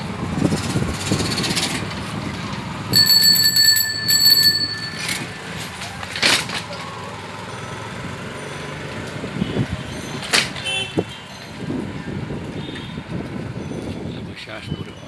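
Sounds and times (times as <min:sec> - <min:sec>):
high metallic ring: 0:03.0 - 0:06.0.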